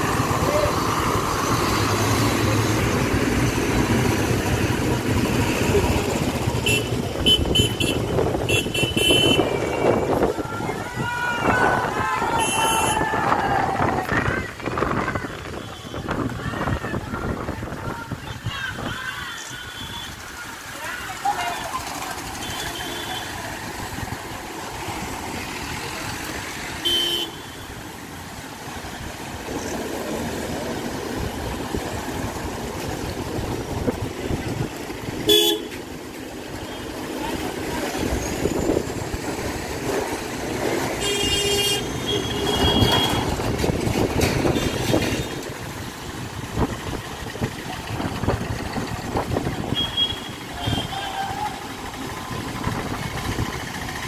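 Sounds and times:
vehicles moving slowly: 0.0 - 54.0
car horns tooting: 6.6 - 10.2, 11.4 - 13.1, 21.5 - 23.5, 26.8 - 27.8, 35.2 - 35.9, 41.0 - 43.5, 44.4 - 45.5, 49.6 - 51.7.

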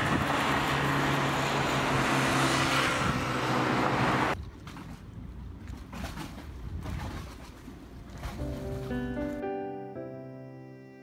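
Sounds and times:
engine drone: 0.0 - 5.5.

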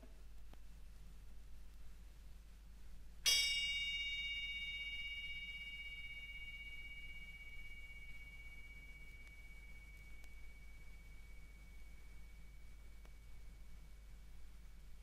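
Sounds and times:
bell-like metal percussion note: 3.3 - 13.6.

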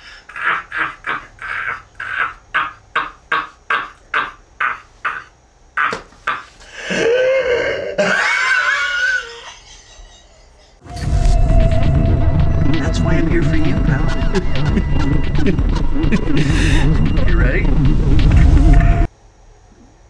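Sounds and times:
man laughing wildly: 0.0 - 10.7, 13.3 - 17.8.

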